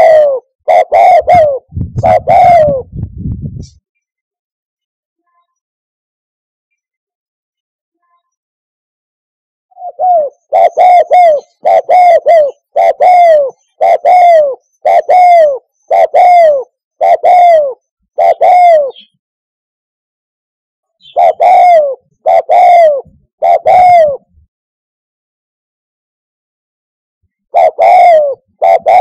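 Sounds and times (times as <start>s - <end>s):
dove cooing: 0.0s - 2.9s, 9.7s - 19.1s, 21.0s - 24.4s, 27.5s - 29.0s.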